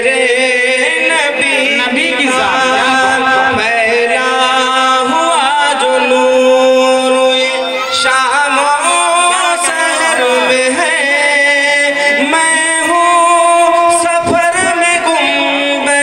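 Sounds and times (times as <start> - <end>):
man singing into microphone: 0.0 - 16.0.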